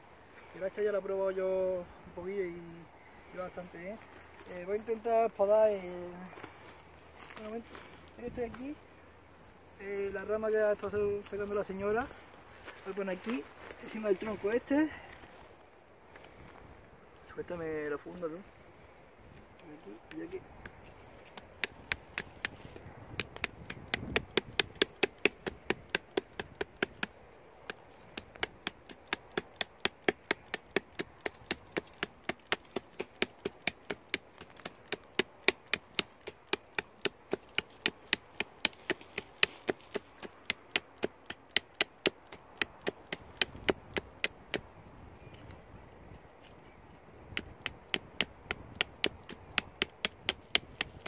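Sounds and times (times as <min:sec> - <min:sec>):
hatchet chopping wood: 0:20.1 - 0:44.7, 0:47.3 - 0:51.0.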